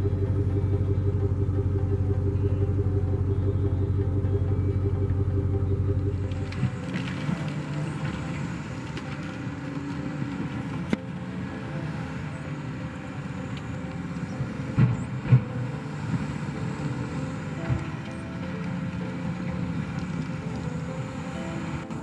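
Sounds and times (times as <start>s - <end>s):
dozer diesel engine running: 0.0s - 22.0s.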